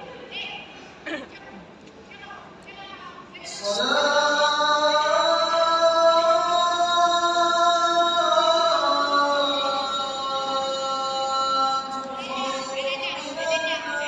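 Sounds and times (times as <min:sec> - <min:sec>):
man chanting call to prayer: 0:03.5 - 0:14.0.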